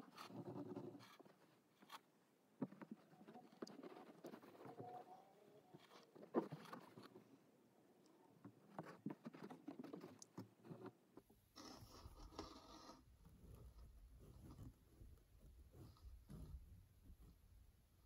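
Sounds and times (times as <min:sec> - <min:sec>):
small ticks and scrapes: 0:00.0 - 0:07.3, 0:08.0 - 0:17.6
needle scratching through fabric: 0:08.7 - 0:17.4.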